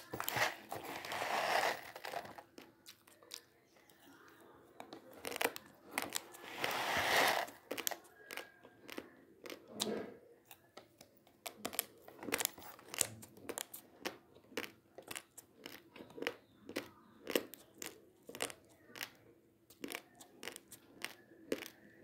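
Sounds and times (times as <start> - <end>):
plastic packet rustling: 0.0 - 2.4, 6.0 - 8.0
rice grains crunched between teeth: 0.0 - 3.4.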